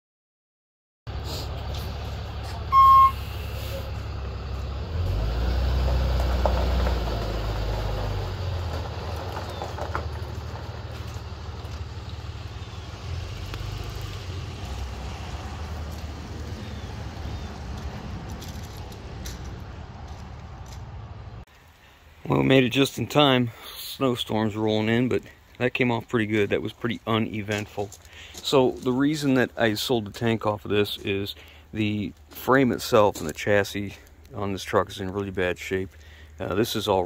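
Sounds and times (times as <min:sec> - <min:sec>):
truck engine running: 0:01.1 - 0:21.4
short loud beep: 0:02.7 - 0:03.6.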